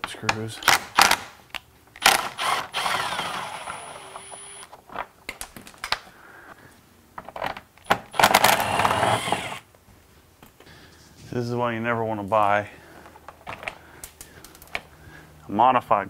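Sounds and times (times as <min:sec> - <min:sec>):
hand tool clicking on screws: 0:08.2 - 0:09.6.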